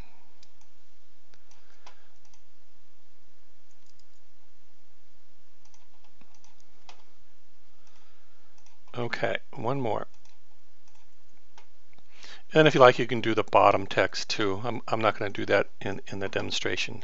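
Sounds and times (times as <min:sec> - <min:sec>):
low hum and hiss: 0:00.0 - 0:17.0
computer mouse clicking: 0:00.4 - 0:02.5, 0:03.7 - 0:04.2, 0:05.6 - 0:07.1, 0:07.8 - 0:09.0, 0:10.1 - 0:11.7.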